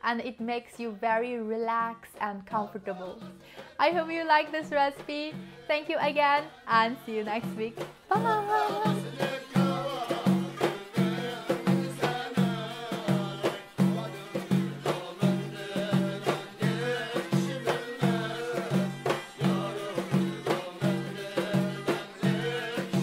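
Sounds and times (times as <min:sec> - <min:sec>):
person singing: 0:05.2 - 0:23.0.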